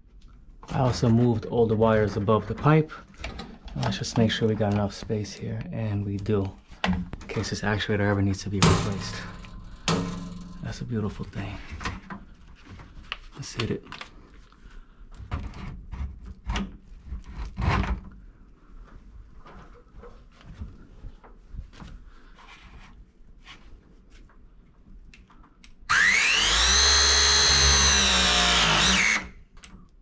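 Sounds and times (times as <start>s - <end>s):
press motor whine: 25.9s - 29.3s.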